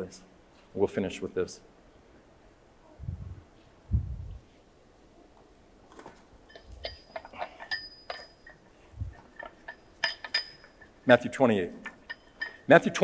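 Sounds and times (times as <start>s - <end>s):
metal rings clinking and rattling: 6.4s - 13.0s.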